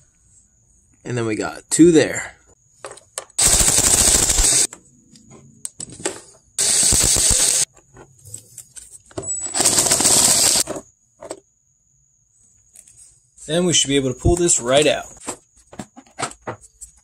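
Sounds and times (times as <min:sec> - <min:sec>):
ratchet clicking: 0:06.6 - 0:07.7, 0:09.6 - 0:10.6.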